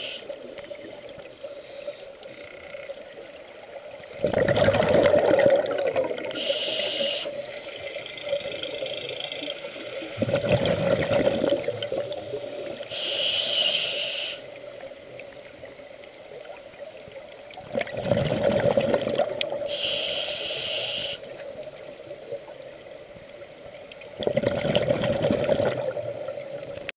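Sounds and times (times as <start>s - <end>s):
regulator valve hissing: 0.0s - 0.4s, 6.2s - 10.0s, 12.8s - 14.5s, 19.7s - 21.4s
exhaled bubbles gurgling: 2.8s - 22.7s, 23.4s - 26.9s.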